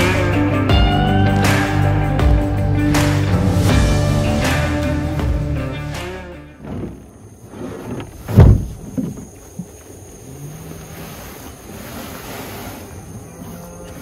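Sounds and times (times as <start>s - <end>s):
heavy thump of tank landing: 8.2s - 9.2s.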